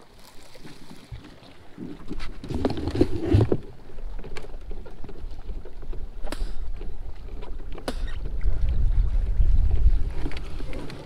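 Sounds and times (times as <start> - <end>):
water lapping against hull: 0.0 - 11.0
wind buffeting microphone: 3.8 - 11.0.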